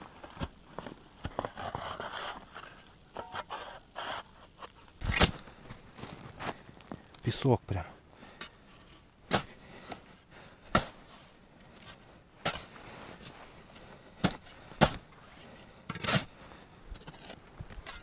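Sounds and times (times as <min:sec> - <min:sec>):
shovel chopping into sandy soil: 0:05.0 - 0:05.4, 0:09.3 - 0:09.6, 0:10.7 - 0:11.0, 0:14.2 - 0:15.0.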